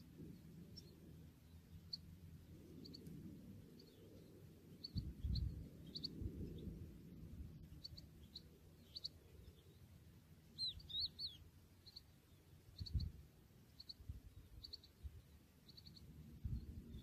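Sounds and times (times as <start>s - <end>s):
finch chirping and twittering: 3.7s - 6.7s, 7.6s - 9.9s, 10.5s - 17.0s
wind rumble on microphone: 4.8s - 8.4s, 12.7s - 13.3s, 14.0s - 15.4s, 16.0s - 17.0s.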